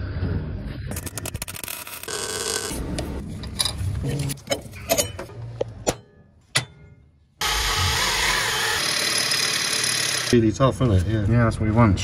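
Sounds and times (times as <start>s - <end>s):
power drill starting: 7.4s - 10.3s.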